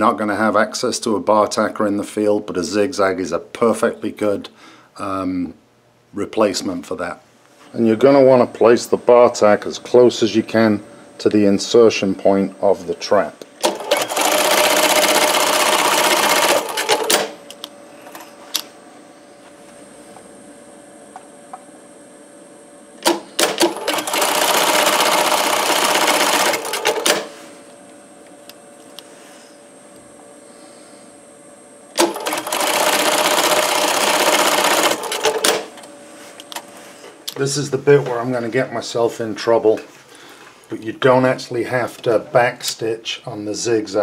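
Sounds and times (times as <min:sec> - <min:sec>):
sewing machine stitching: 0:13.6 - 0:17.3, 0:23.0 - 0:27.3, 0:32.0 - 0:35.7
sharp machine clicks: 0:13.6 - 0:17.4, 0:23.0 - 0:27.3, 0:32.0 - 0:35.8.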